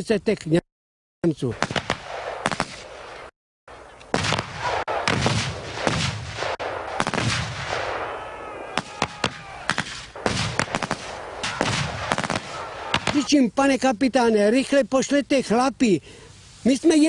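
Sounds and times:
rifle and machine-gun shots: 0:01.5 - 0:03.2, 0:04.1 - 0:08.2, 0:08.8 - 0:13.3
explosions with rumbling tails: 0:04.1 - 0:08.2, 0:08.8 - 0:13.2.

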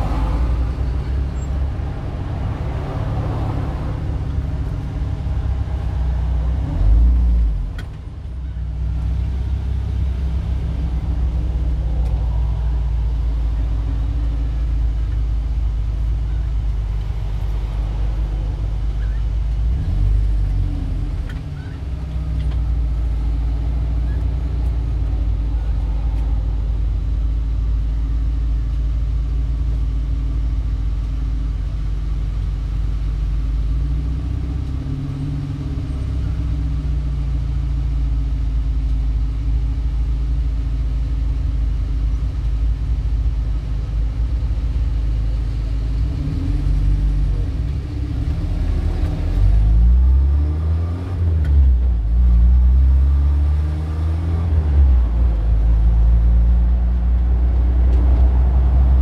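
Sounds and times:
car engine revving: 0:00.0 - 0:07.9, 0:45.8 - 0:59.0.

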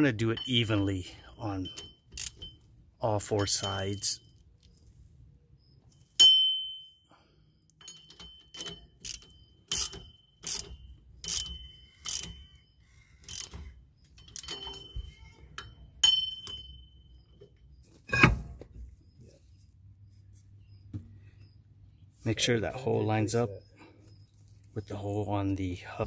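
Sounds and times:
torque wrench clicking: 0:01.8 - 0:02.6, 0:07.8 - 0:12.6, 0:13.2 - 0:14.6
metallic ping: 0:06.2 - 0:07.0.

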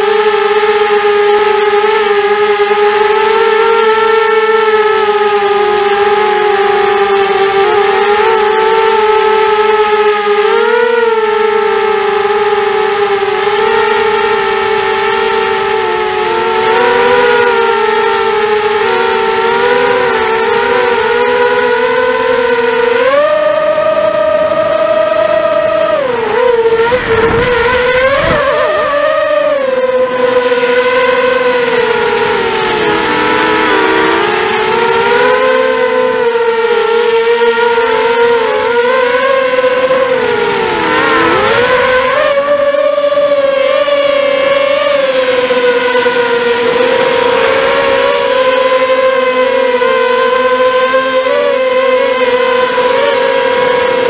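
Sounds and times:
drone motors whining: 0:00.0 - 0:54.0
rush of air: 0:26.5 - 0:29.8.

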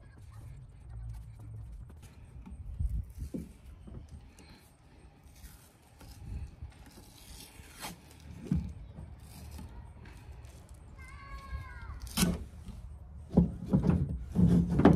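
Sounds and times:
tape pulled off roll: 0:05.3 - 0:09.7.

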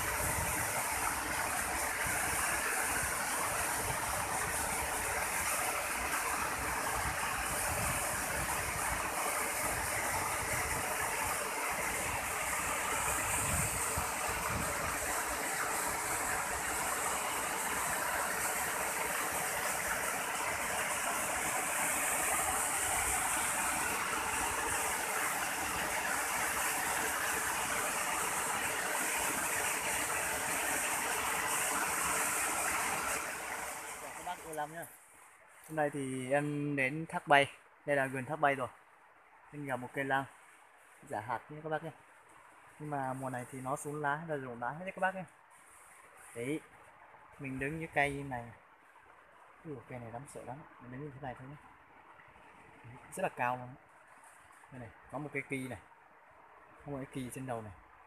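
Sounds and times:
waterfall rushing: 0:00.0 - 0:34.9.

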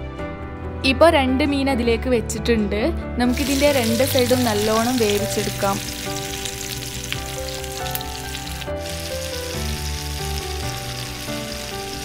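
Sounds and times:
background music of held notes: 0:00.0 - 0:12.0
fish sizzling in a frying pan: 0:03.3 - 0:12.0.

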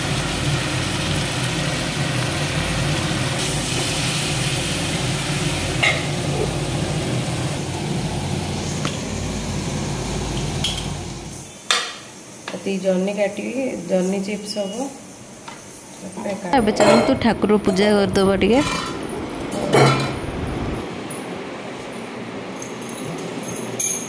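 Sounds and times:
food sizzling in a pan: 0:00.0 - 0:16.5
low hum: 0:16.6 - 0:21.4.

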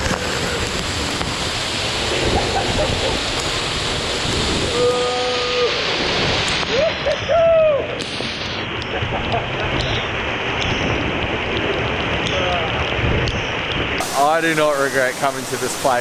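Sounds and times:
waterfall rushing: 0:00.0 - 0:10.9, 0:14.0 - 0:16.0
man whooping: 0:04.6 - 0:06.0, 0:06.7 - 0:08.0
man shouting: 0:04.7 - 0:05.9.

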